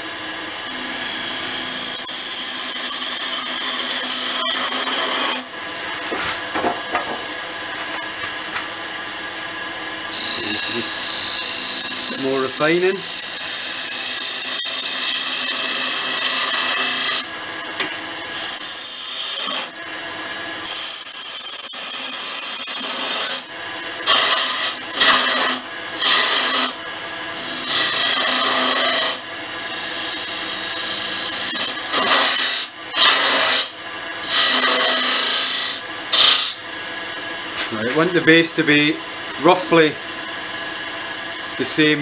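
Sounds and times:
lathe humming: 0.0s - 42.0s
gouge scraping wood: 24.0s - 26.8s, 27.6s - 29.2s, 31.6s - 33.7s, 34.3s - 36.6s.

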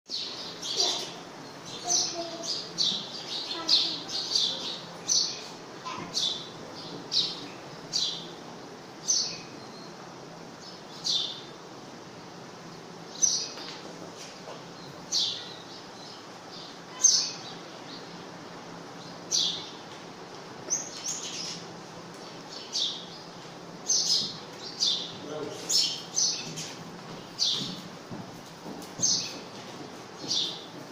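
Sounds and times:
small bird chirping: 20.7s - 27.8s.

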